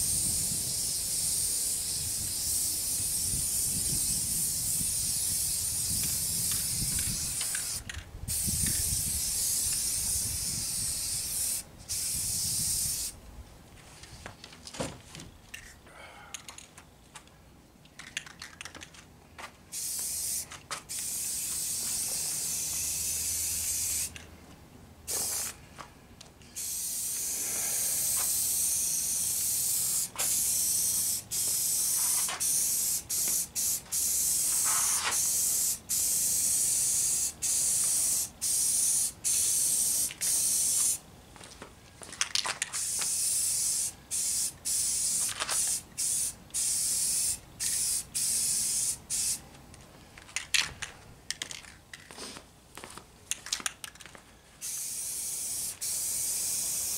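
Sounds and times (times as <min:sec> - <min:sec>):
spray paint can hissing: 0:00.0 - 0:13.2, 0:19.7 - 0:24.2, 0:25.1 - 0:25.6, 0:26.6 - 0:41.0, 0:42.6 - 0:49.4, 0:54.6 - 0:56.9.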